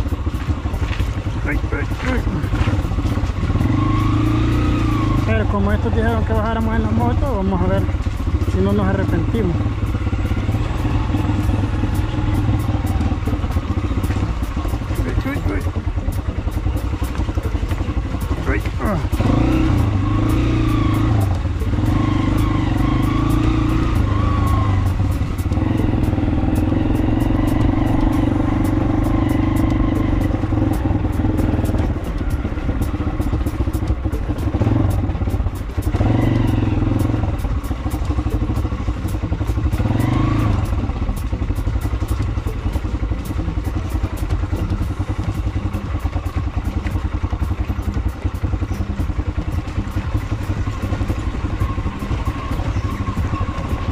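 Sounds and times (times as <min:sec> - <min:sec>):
bike rattling over stones: 0:00.0 - 0:03.8
small motorcycle engine: 0:00.0 - 0:53.9.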